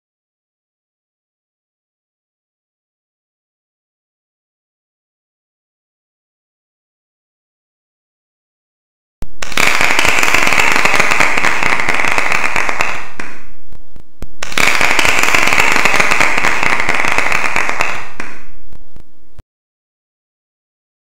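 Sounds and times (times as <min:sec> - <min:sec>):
dense crackling sound effect: 0:09.2 - 0:19.4.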